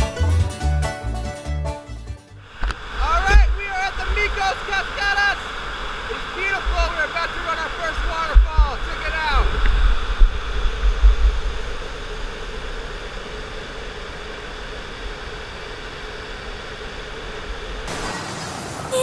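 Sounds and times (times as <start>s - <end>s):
waterfall rushing: 2.4s - 19.0s
wind buffeting microphone: 2.5s - 13.1s.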